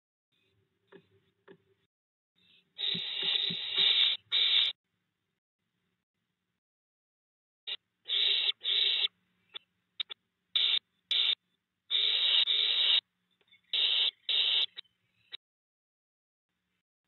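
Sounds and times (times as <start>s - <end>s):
owl hissing: 2.8s - 4.8s, 7.7s - 9.1s, 10.0s - 13.0s, 13.6s - 14.8s.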